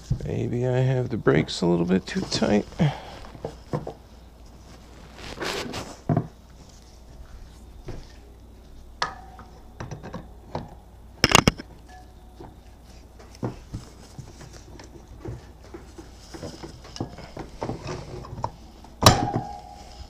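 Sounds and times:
metal clicks and knocks: 9.0s - 11.7s
metal clanks: 9.0s - 12.0s, 16.8s - 20.0s.

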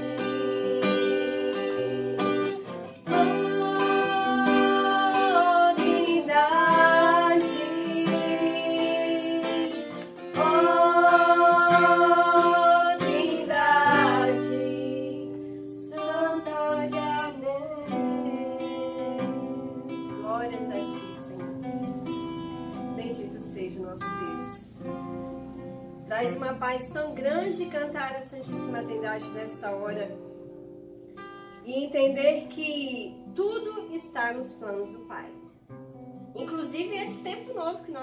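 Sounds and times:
person singing long notes: 0.0s - 19.8s
acoustic guitar playing chords: 0.0s - 38.0s.

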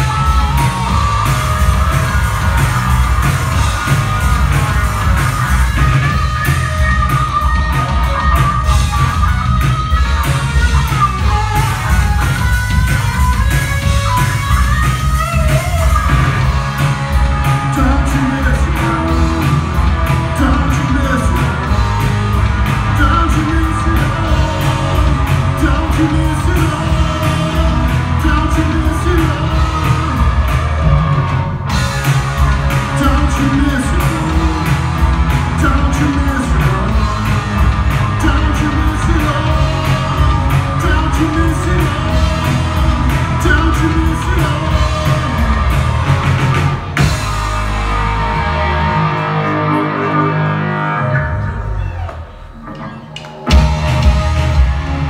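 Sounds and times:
drum kit: 0.0s - 49.7s, 51.8s - 55.0s
bass guitar: 0.0s - 55.0s
electric guitar: 0.0s - 55.0s
person singing: 17.3s - 22.1s, 22.8s - 31.0s, 32.8s - 45.8s.

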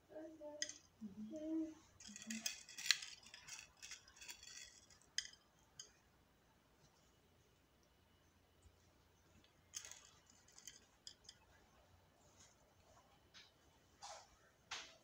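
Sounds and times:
candies and packaging rattling: 0.4s - 1.1s, 1.7s - 5.9s, 9.6s - 11.5s.

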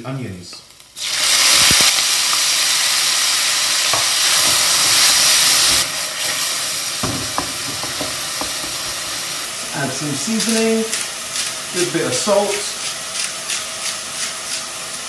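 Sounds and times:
onions sizzling in oil: 0.2s - 15.0s
wooden spoon knocking on pan: 3.9s - 5.0s, 7.0s - 9.0s.

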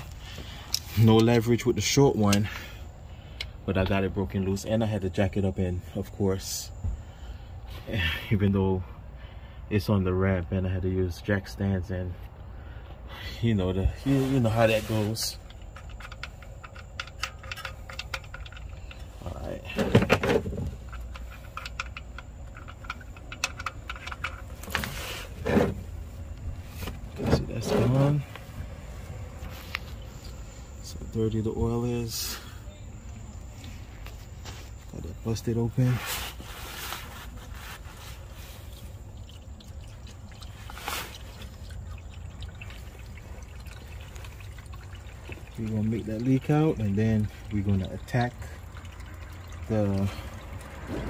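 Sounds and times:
drain plug clicking and tapping: 15.4s - 19.1s, 19.8s - 24.9s
oil pouring into drain pan: 38.0s - 51.0s.

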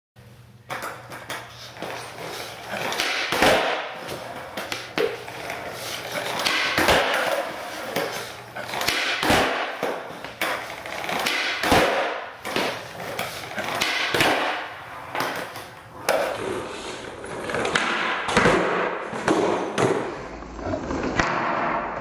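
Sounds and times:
skateboard wheels rolling on concrete: 0.6s - 22.0s
skateboard clacking on concrete: 0.7s - 16.4s.

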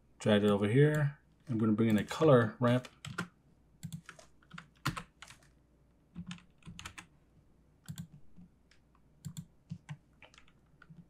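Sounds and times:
keyboard typing: 2.7s - 5.5s, 6.1s - 7.1s, 7.8s - 11.0s.

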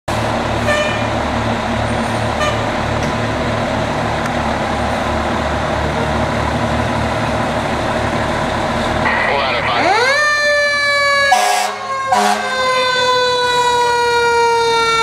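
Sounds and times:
diesel engine running: 0.1s - 12.5s
high horn toots: 11.3s - 12.6s.

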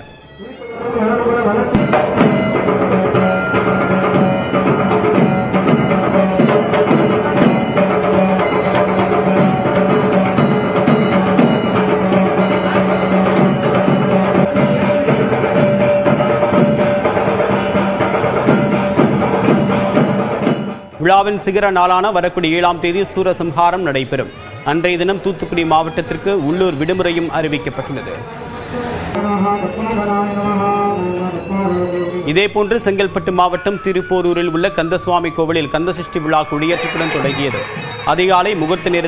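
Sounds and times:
fast dense percussion: 1.6s - 21.8s, 36.4s - 39.0s.

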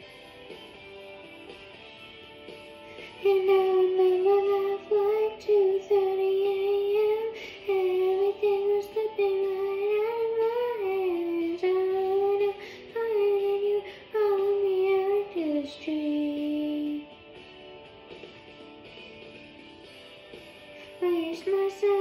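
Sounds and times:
girl singing into microphone: 2.9s - 17.1s, 20.8s - 22.0s.

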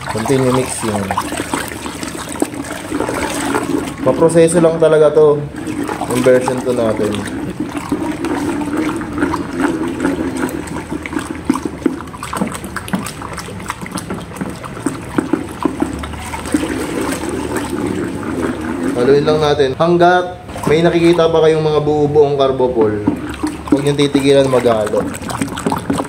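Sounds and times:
liquid swishing and sloshing in bucket: 0.0s - 26.0s.

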